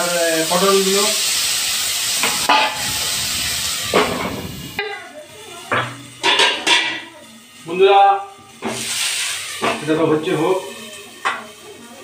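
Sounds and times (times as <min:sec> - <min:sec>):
vegetables sizzling in hot oil: 0:00.0 - 0:12.0
wok lid clanking: 0:02.1 - 0:04.8, 0:05.7 - 0:07.1.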